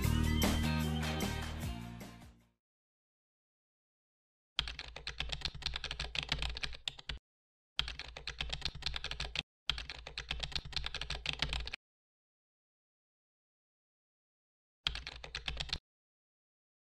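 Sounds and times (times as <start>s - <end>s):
keyboard typing clicks: 4.6s - 7.2s, 7.8s - 11.8s, 14.9s - 15.8s.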